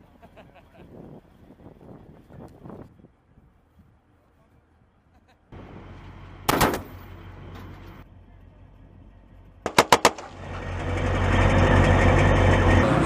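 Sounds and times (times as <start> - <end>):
armoured vehicle engine running: 5.6 - 13.0
gunshot echo: 6.5 - 7.0, 9.7 - 10.4
machine gun burst: 9.7 - 10.4.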